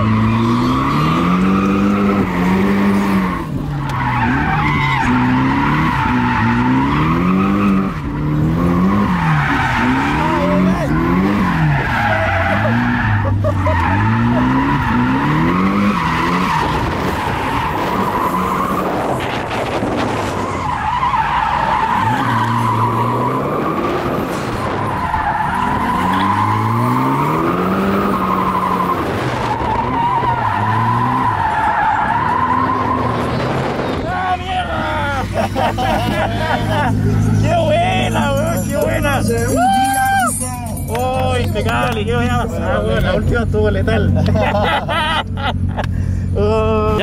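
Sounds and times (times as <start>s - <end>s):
tyres squealing: 0.0s - 19.2s, 20.4s - 43.7s
car engine revving: 0.0s - 47.0s.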